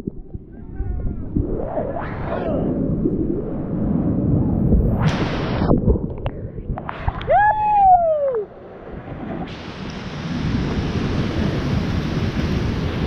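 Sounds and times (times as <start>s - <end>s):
muffled underwater rumble: 0.0s - 9.8s
whitewater rushing hiss: 9.5s - 13.0s.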